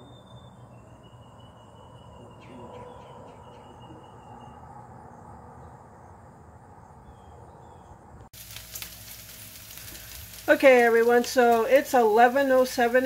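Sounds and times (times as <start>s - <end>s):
faint outdoor background: 0.0s - 13.0s
bacon sizzling and crackling: 8.4s - 13.0s.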